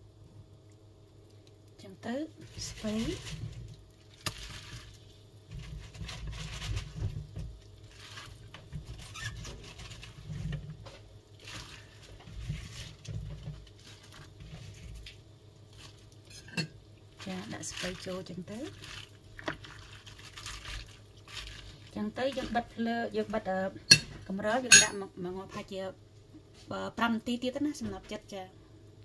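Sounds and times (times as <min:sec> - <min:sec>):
cabbage leaves rustling in a pot: 0:01.8 - 0:24.7.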